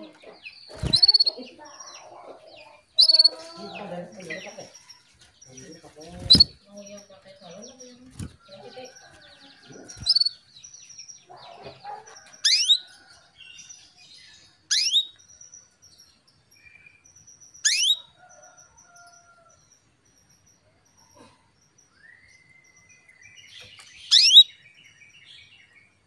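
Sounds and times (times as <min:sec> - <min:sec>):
soft bird chirps and twitters: 0:00.0 - 0:26.0
canary calls sweeping down: 0:00.7 - 0:01.4, 0:06.1 - 0:06.6
wing flutters: 0:00.7 - 0:01.4, 0:05.9 - 0:06.7.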